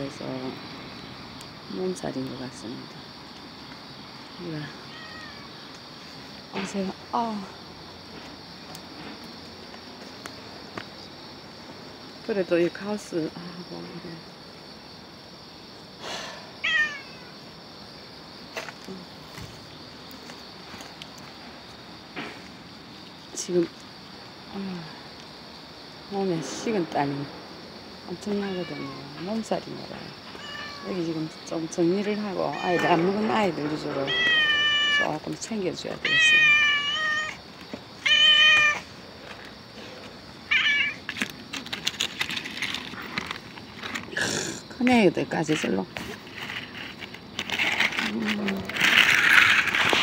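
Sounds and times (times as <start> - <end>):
crickets chirring: 0.0 - 50.0
cat meowing: 4.8 - 5.6, 16.6 - 17.4, 28.6 - 29.1, 30.3 - 30.9, 32.5 - 33.0, 34.1 - 35.1, 36.0 - 37.4, 38.0 - 38.8, 40.5 - 41.0.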